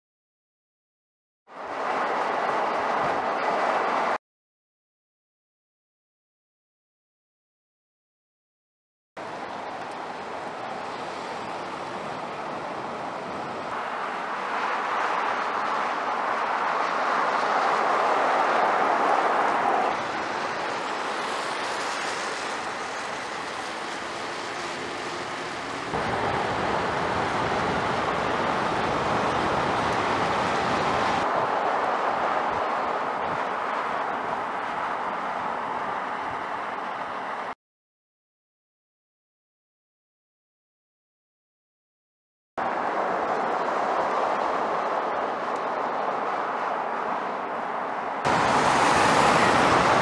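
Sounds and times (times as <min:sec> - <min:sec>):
tyre and road noise: 0:01.5 - 0:04.2, 0:09.2 - 0:37.6, 0:42.6 - 0:50.0.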